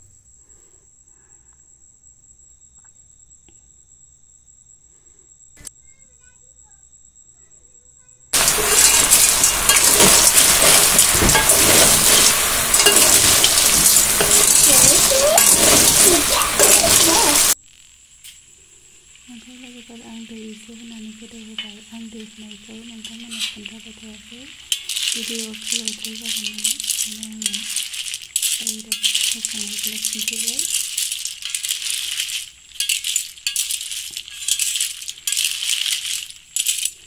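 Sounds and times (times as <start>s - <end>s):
loud frying sizzle: 8.3s - 37.0s
shells clinking: 8.4s - 17.6s, 24.5s - 37.0s.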